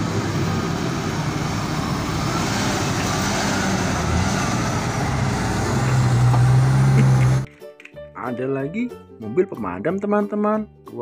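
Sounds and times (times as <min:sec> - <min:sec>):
truck diesel engine drone: 0:00.0 - 0:07.5.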